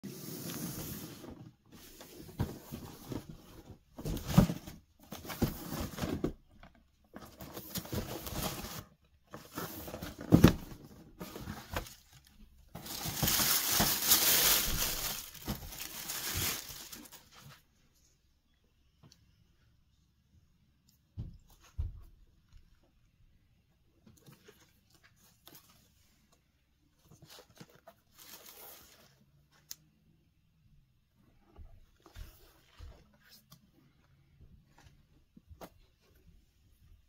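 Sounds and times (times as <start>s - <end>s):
tissue paper crinkling: 11.2s - 17.5s.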